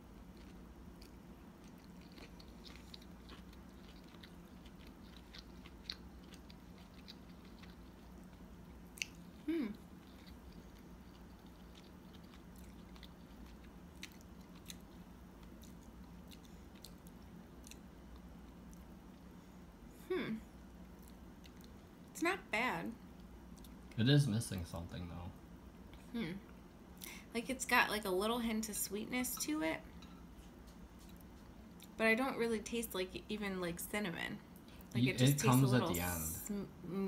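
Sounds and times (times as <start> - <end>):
faint chewing: 0.0 - 19.6, 20.6 - 22.1, 30.0 - 32.0
steady low hum: 0.0 - 37.0
person humming mm: 9.4 - 9.8.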